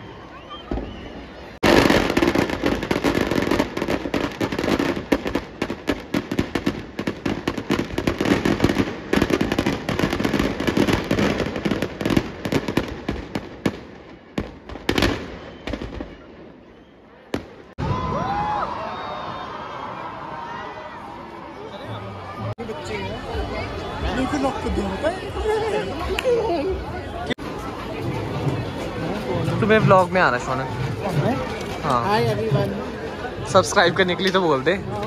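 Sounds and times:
firecrackers crackling: 1.6s - 16.7s.

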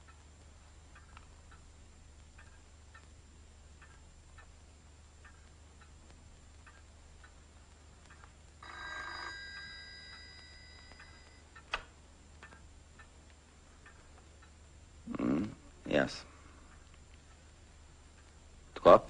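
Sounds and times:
telephone bell ringing: 8.6s - 11.5s.

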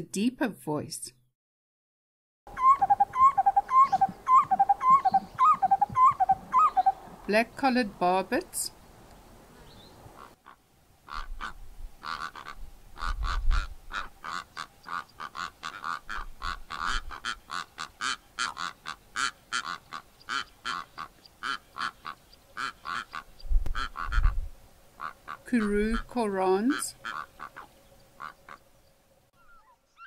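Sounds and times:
birds calling rapidly: 2.5s - 7.3s, 9.6s - 24.4s, 25.0s - 28.7s.

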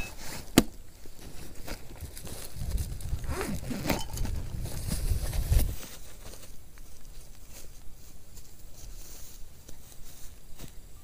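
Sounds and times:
nylon bag rustling: 0.0s - 7.8s
footsteps on grass: 4.2s - 11.0s.

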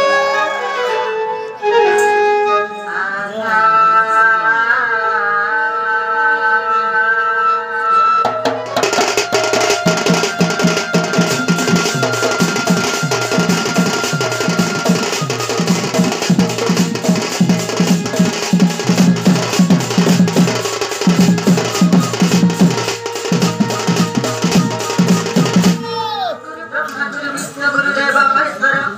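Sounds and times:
fast pounding drums: 8.3s - 26.0s.

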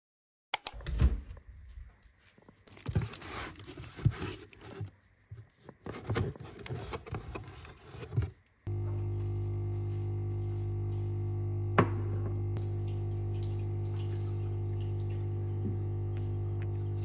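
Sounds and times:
cardboard scraping and rustling: 2.7s - 8.4s.

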